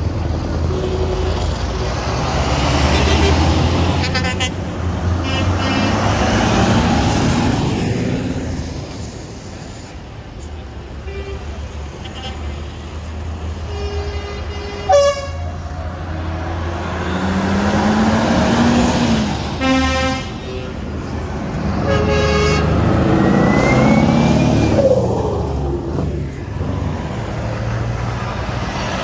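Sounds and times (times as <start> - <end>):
lorries driving past rumbling: 0.0 - 29.0
lorry horn blasts: 13.7 - 15.6, 19.6 - 20.8, 21.8 - 22.7.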